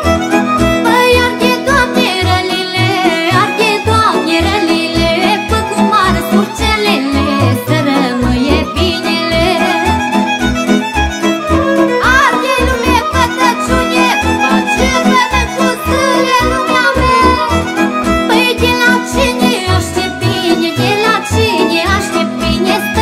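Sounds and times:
fiddle melody: 0:00.0 - 0:23.0
accompaniment chords: 0:10.4 - 0:19.3.

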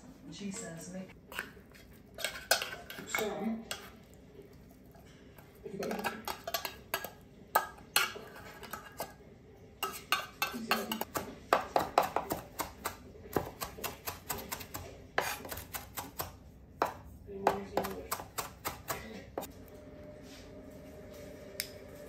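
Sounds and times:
fork scraping glass bowl: 0:01.3 - 0:04.0, 0:08.0 - 0:09.2, 0:15.2 - 0:15.8
knife chopping on wooden board: 0:11.0 - 0:19.5.

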